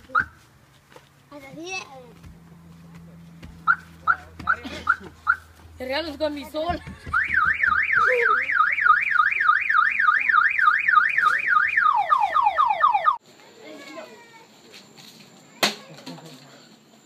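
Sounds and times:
car alarm falling chirps: 3.6s - 5.5s, 7.1s - 13.2s
car alarm warbling: 3.6s - 5.5s, 7.1s - 13.2s.

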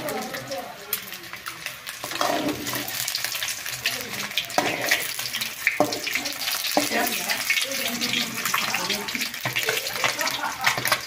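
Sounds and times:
eggs sizzling in hot oil: 0.0s - 11.0s
spatula knocking on pan: 9.4s - 11.0s.

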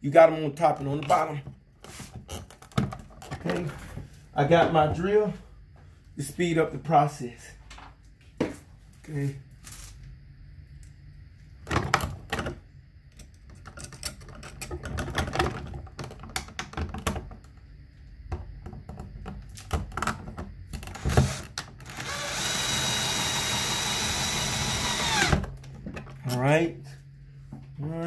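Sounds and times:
power drill driving screw: 20.9s - 25.5s.

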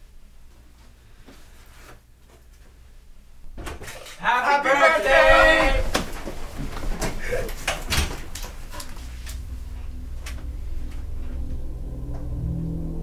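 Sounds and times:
low background music drone: 9.2s - 13.0s.

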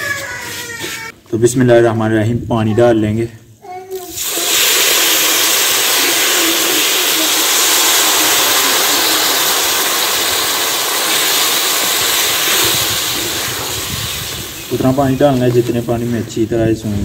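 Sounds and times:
water sizzling in hot pan: 3.9s - 16.0s.

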